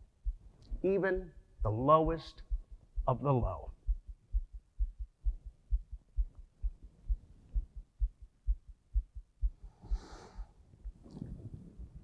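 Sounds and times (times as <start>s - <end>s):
heartbeat thumping: 0.0s - 12.0s
heavy exhaled breath: 9.8s - 10.6s.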